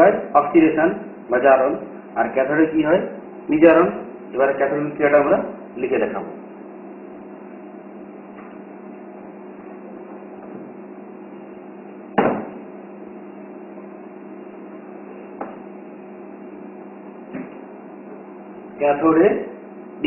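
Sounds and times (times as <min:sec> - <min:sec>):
knock against board: 0:12.2 - 0:12.6.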